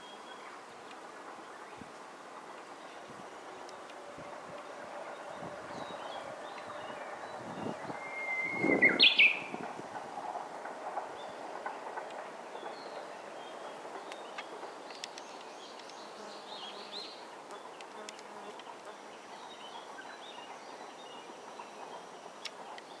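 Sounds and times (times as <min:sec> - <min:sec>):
steady background hiss: 0:00.0 - 0:23.0.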